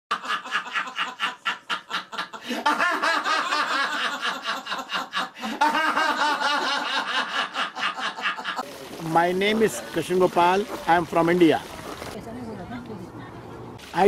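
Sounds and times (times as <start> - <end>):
people laughing: 0.1 - 10.9.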